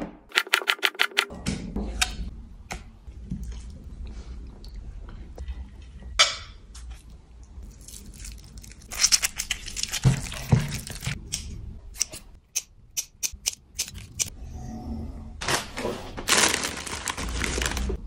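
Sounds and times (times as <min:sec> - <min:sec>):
lime squeezed wet squishing: 0:07.6 - 0:11.1.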